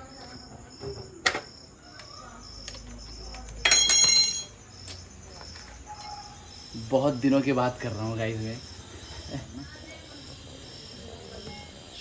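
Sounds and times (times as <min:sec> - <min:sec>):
crickets chirping: 0:00.0 - 0:12.0
metal tools clinking: 0:03.6 - 0:04.6
metallic jangle: 0:03.6 - 0:04.6.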